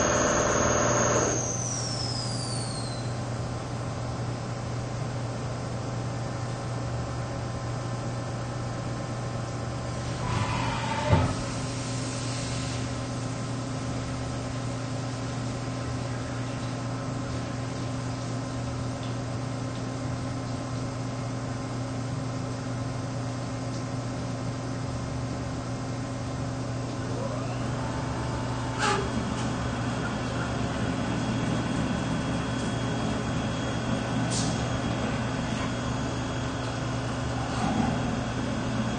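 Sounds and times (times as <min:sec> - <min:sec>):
machine hum with held tones: 0:00.0 - 0:03.2, 0:26.7 - 0:38.9.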